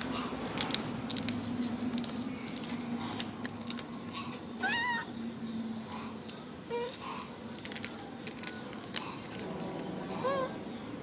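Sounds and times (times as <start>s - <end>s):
snack wrapper crackling: 0.0s - 3.9s, 7.5s - 10.0s.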